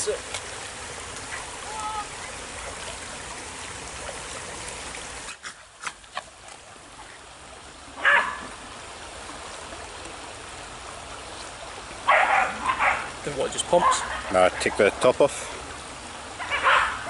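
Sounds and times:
stream running over stones: 0:00.0 - 0:17.0
small dog barking: 0:08.0 - 0:08.5, 0:12.1 - 0:13.1, 0:16.4 - 0:17.0.

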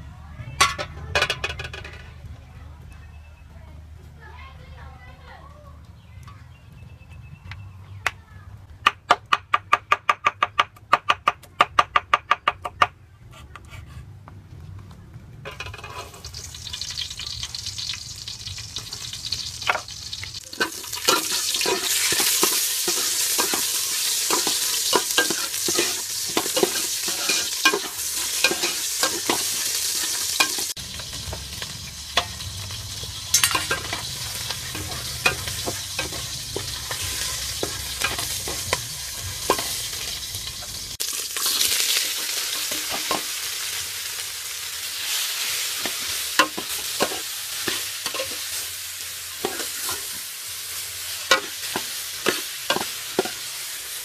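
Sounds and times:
garlic sizzling in hot oil: 0:15.5 - 0:54.0.

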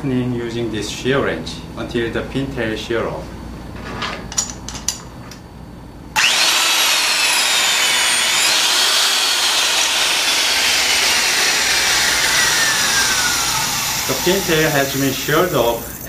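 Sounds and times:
electric wrench motor whining: 0:06.2 - 0:16.0.

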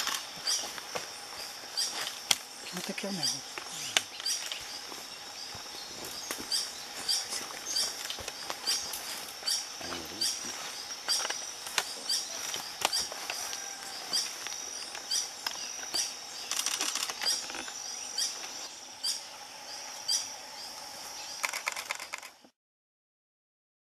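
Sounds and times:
steady high-pitched hum: 0:00.0 - 0:21.5.

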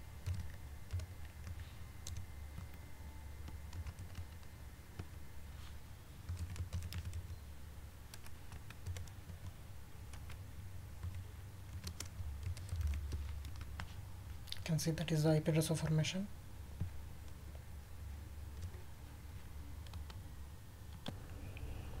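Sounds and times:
keyboard keystrokes: 0:03.4 - 0:05.1
low hum: 0:16.3 - 0:22.0.

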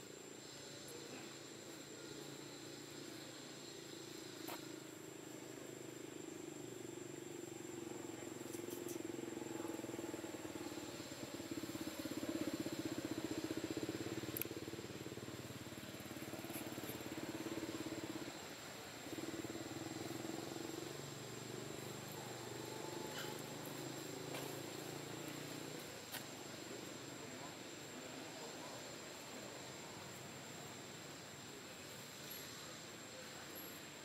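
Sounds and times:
faint clicks: 0:14.3 - 0:14.6.

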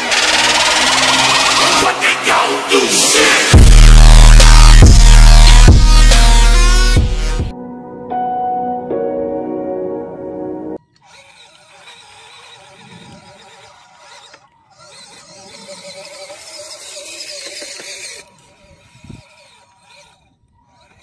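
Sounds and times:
electric motor and gearbox whining: 0:00.0 - 0:02.0, 0:03.3 - 0:07.5, 0:10.8 - 0:21.0.

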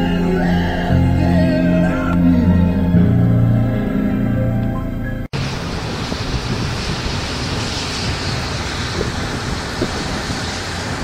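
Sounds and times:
low rumble: 0:00.0 - 0:11.0
wind buffeting microphone: 0:05.3 - 0:11.0.

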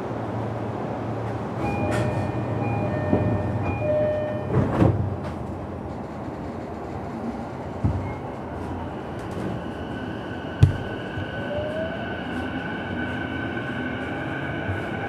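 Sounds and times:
train car hum: 0:00.0 - 0:15.0
train door chime: 0:01.6 - 0:05.0.

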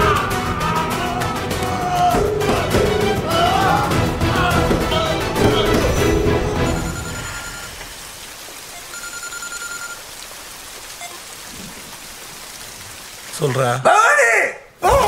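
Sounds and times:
phone electronic tones: 0:06.7 - 0:07.8, 0:08.7 - 0:10.0
rain-like hiss: 0:06.7 - 0:14.1.

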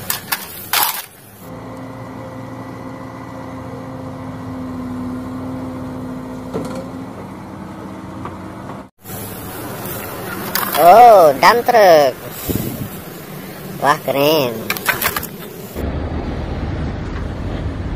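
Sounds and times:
excavator engine running: 0:00.0 - 0:17.9
steady whine: 0:08.9 - 0:17.9.

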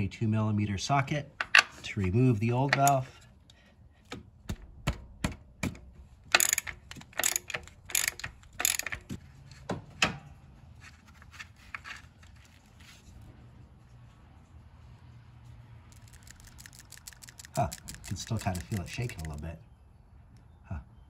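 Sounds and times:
socket ratchet clicking: 0:06.3 - 0:09.1, 0:15.9 - 0:19.4.

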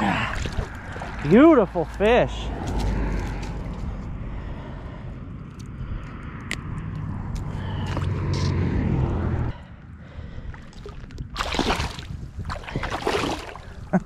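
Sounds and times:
fish splashing in water: 0:00.0 - 0:02.0, 0:10.6 - 0:13.9.

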